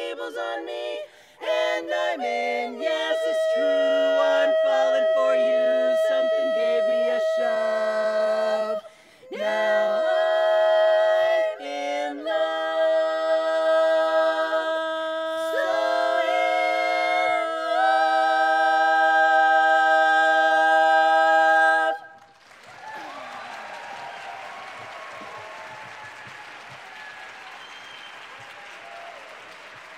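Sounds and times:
women singing in close harmony: 0.0s - 22.2s
applause: 22.1s - 29.9s.

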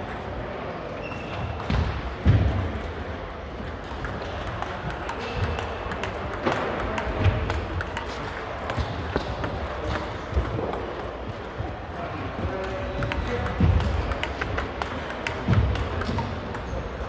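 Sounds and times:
table tennis balls clicking: 2.8s - 17.0s.

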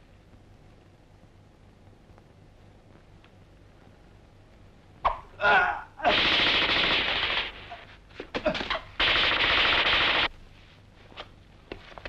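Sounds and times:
automatic rifle bursts: 6.1s - 7.8s, 9.0s - 10.3s.

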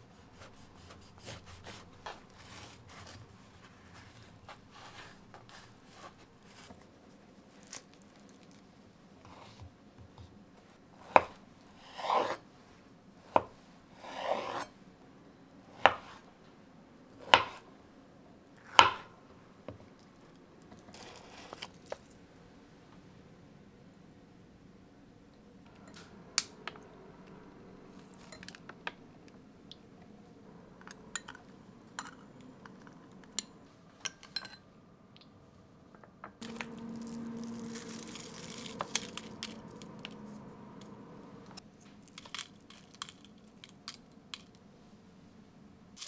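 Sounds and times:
metal spoon clinking on glass bowl: 32.0s - 34.6s
seaweed being torn and crumbled: 36.4s - 40.4s, 42.0s - 44.6s.

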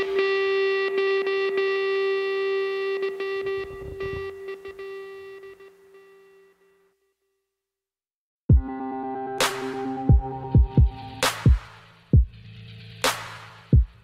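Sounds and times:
held note with overtones: 0.0s - 6.8s.

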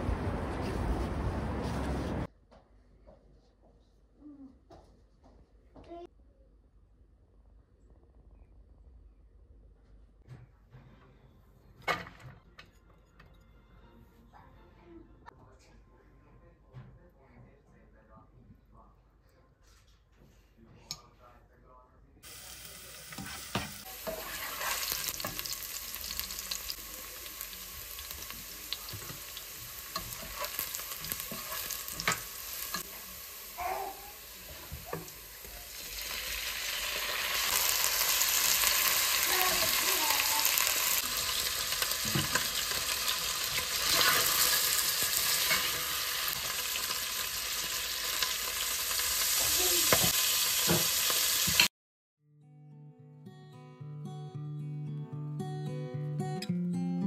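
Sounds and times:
food sizzling in hot oil: 22.3s - 51.7s
spatula scraping a pot: 23.1s - 25.5s, 29.9s - 32.2s, 43.6s - 45.8s.

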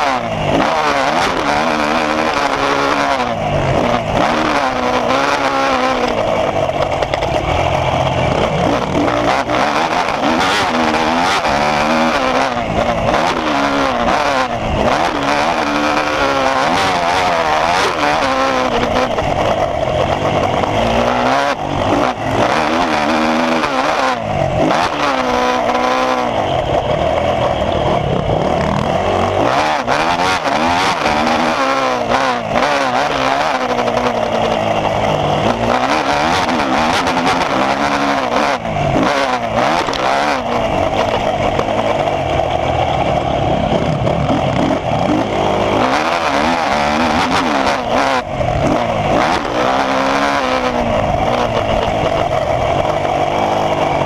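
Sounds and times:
dirt bike engine revving: 0.0s - 54.0s.

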